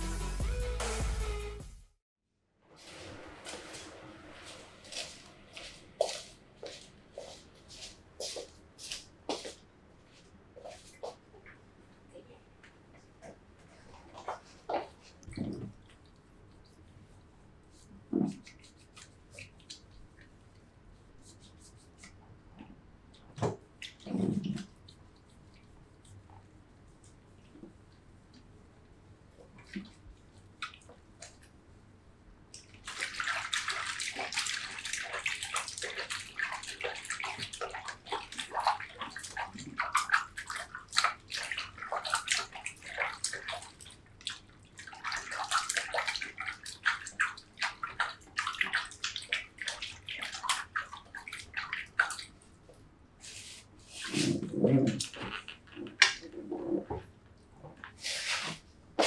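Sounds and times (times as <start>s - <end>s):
water running and splashing: 32.8s - 52.4s.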